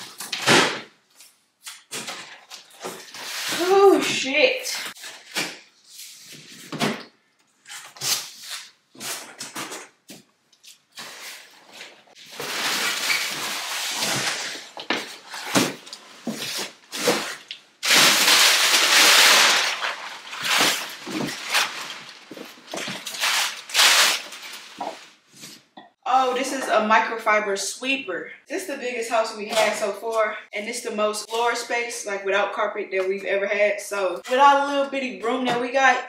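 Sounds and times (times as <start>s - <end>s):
packaging rustling and crinkling: 10.7s - 25.6s.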